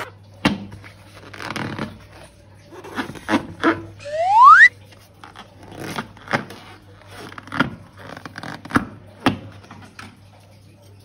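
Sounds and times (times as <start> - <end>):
rubber balloon squeaks and rubs: 1.2 - 2.0, 2.8 - 4.7
short sharp balloon squeaks: 4.0 - 4.7.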